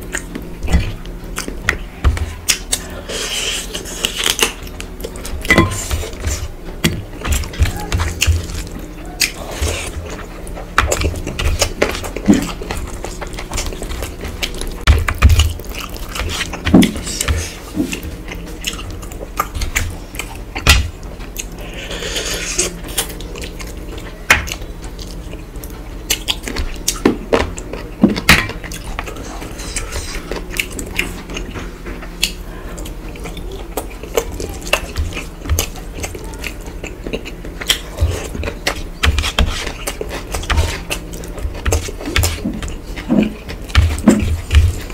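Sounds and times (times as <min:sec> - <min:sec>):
wet chewing and mouth smacks: 0:22.6 - 0:44.9.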